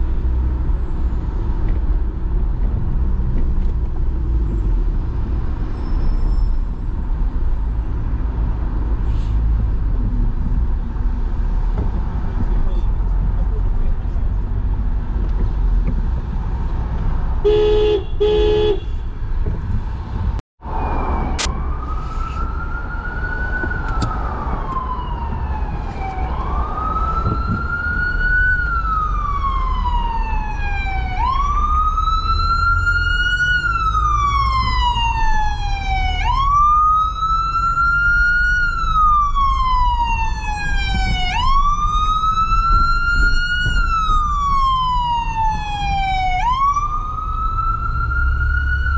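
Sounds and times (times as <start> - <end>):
city traffic rumble: 0.0 - 48.9
car horn beeps: 17.4 - 19.1
emergency siren wailing: 20.6 - 48.9.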